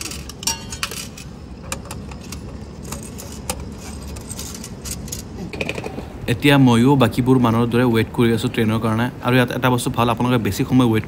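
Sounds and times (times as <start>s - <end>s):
coins clinking: 0.0s - 5.4s.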